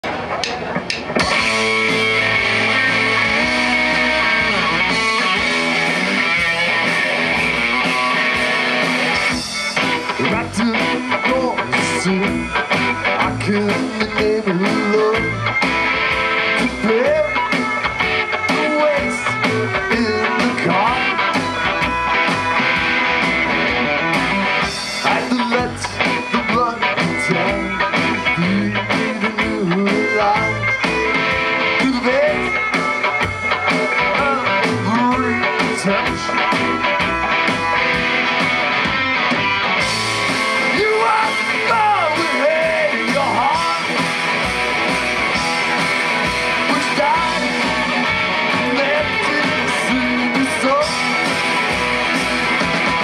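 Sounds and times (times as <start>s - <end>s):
drum kit: 0.0s - 53.0s
electric guitar: 0.0s - 53.0s
upright double bass: 1.2s - 9.3s.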